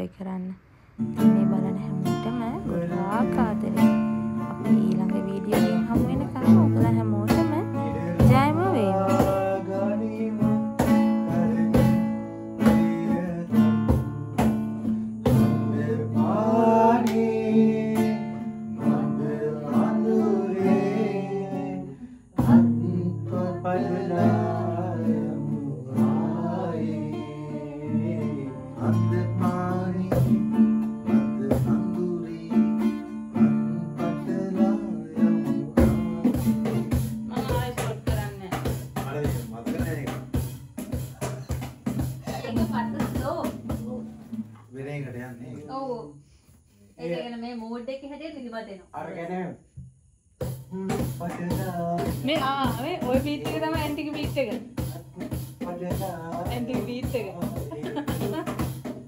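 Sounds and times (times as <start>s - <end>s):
strummed acoustic guitar: 0.9s - 45.7s, 50.4s - 59.0s
man singing: 2.3s - 3.8s, 7.7s - 14.1s, 15.3s - 37.0s, 50.7s - 52.5s, 55.0s - 58.2s.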